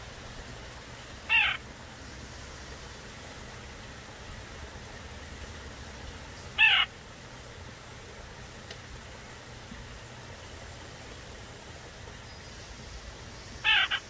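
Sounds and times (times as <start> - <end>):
bird short calls: 1.3 - 1.6, 6.6 - 6.9, 13.6 - 14.0.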